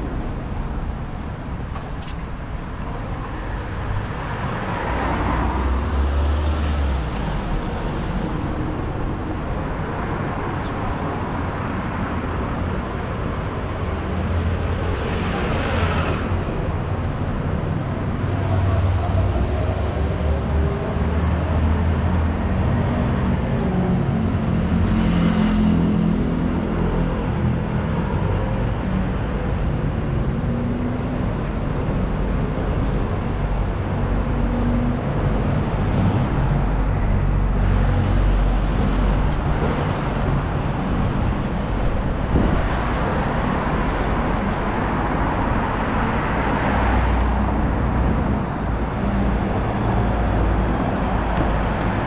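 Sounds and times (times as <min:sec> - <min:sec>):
traffic engine rumble: 0:00.0 - 0:52.0.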